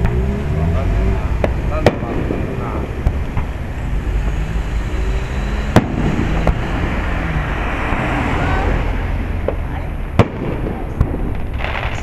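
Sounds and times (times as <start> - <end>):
low rumble of fireworks display: 1.1 - 3.8, 5.7 - 7.0, 7.9 - 12.0.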